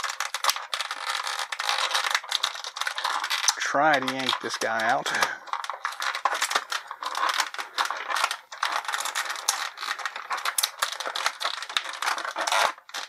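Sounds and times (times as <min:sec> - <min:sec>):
plastic packaging crackling: 0:00.0 - 0:13.0.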